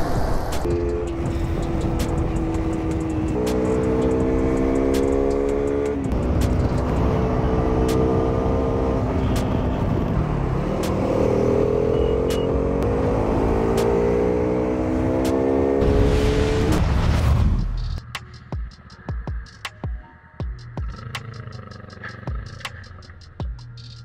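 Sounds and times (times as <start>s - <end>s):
motorcycle engine accelerating: 0.6s - 16.8s.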